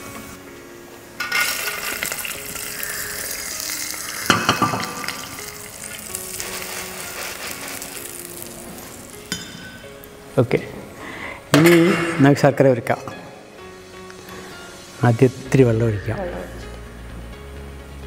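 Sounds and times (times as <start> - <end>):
nuts sizzling in hot fat: 1.2 - 10.2.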